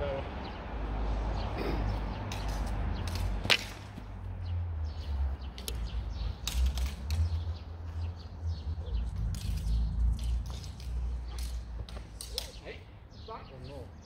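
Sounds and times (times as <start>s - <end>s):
fencing swords clashing: 2.3s - 3.9s, 6.4s - 7.3s, 9.3s - 12.6s.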